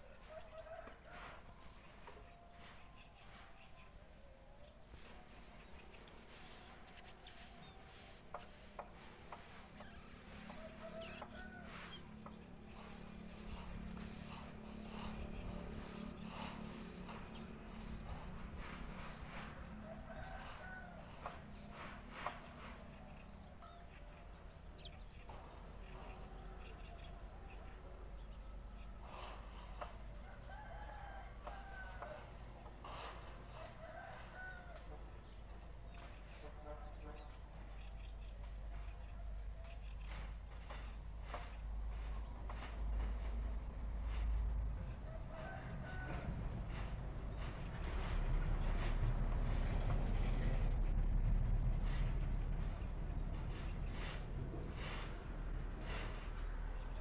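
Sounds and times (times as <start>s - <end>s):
birds calling: 4.7s - 57.0s
low rumble: 11.7s - 28.9s, 45.7s - 57.0s.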